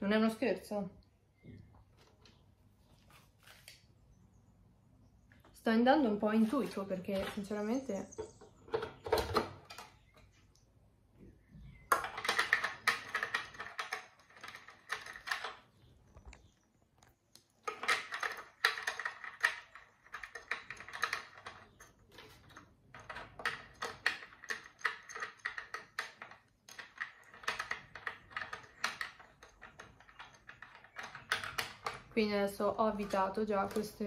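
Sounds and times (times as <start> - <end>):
rapid plastic clicking and rattling: 17.6 - 32.2.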